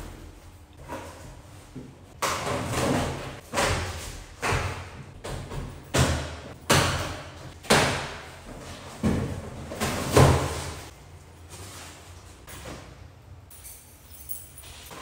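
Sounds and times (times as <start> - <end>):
cardboard boxes thumping and rustling: 7.6 - 10.9.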